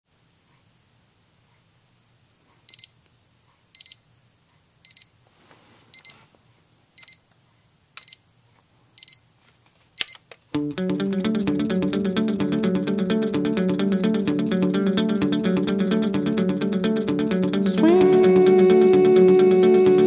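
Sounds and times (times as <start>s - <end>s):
clock radio alarm beeping: 3.8s - 4.0s, 4.9s - 5.1s, 7.0s - 7.2s.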